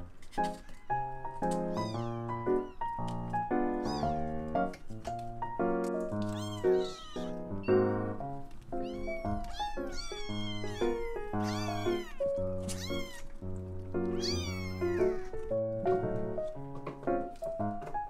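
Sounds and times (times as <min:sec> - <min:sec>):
kittens mewing: 0:00.2 - 0:03.0, 0:03.6 - 0:04.4, 0:06.2 - 0:08.0, 0:08.8 - 0:13.4, 0:14.0 - 0:15.5.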